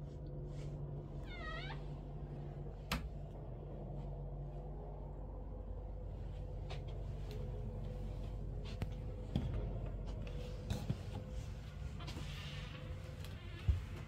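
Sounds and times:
steady low hum: 0.0 - 14.0
soft footsteps: 1.8 - 14.0.

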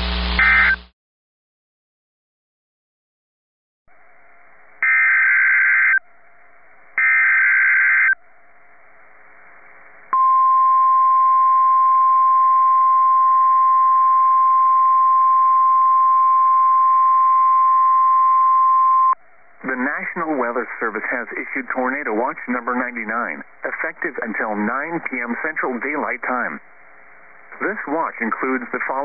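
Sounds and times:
screeching data bursts: 0.0 - 0.9, 4.8 - 6.0, 7.0 - 8.2
steady warning alarm tone: 0.4 - 0.8, 4.8 - 6.0, 7.0 - 8.3
faint radio hiss: 5.8 - 12.2, 19.3 - 29.0.

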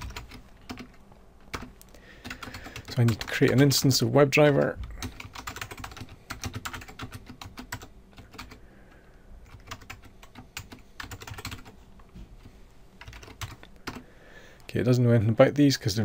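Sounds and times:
typing on a keyboard: 0.0 - 3.8, 5.0 - 8.6, 9.4 - 11.7, 13.0 - 14.0.

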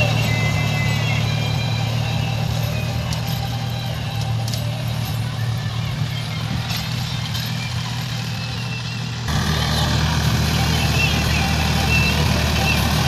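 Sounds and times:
tractor diesel engine running: 0.0 - 13.0.

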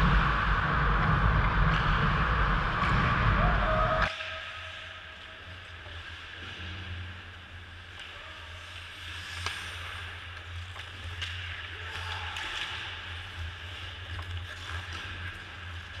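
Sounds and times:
steady low hum: 0.0 - 4.0.

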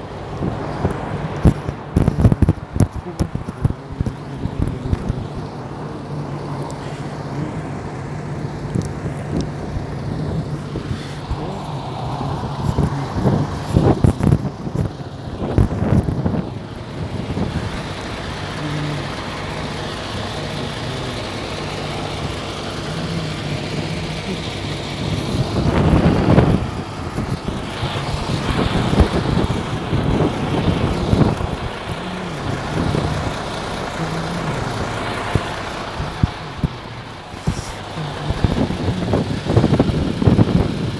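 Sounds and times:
diesel engine idling: 0.0 - 40.9
wind on microphone: 0.3 - 5.5, 8.7 - 17.8, 25.0 - 33.4, 35.3 - 40.9.

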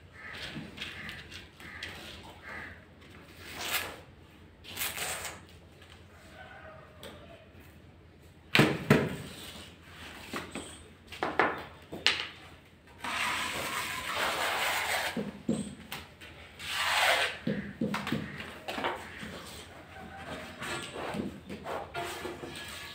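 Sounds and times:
trowel scraping tile adhesive: 13.0 - 15.7, 16.6 - 18.4, 20.6 - 22.9.

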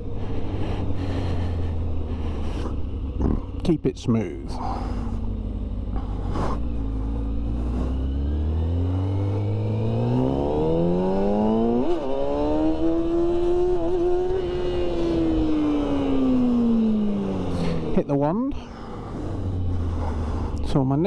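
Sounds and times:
dirt bike engine revving: 4.6 - 18.0.

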